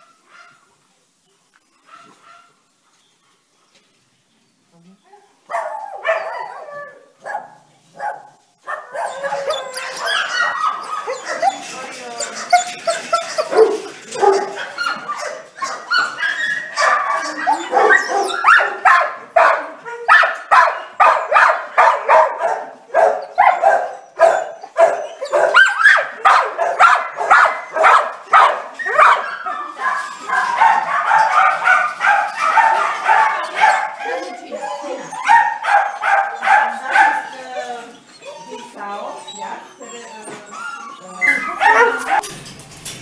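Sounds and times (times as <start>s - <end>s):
dogs barking: 5.5s - 37.7s, 41.3s - 42.3s
dogs yelping: 8.6s - 42.3s.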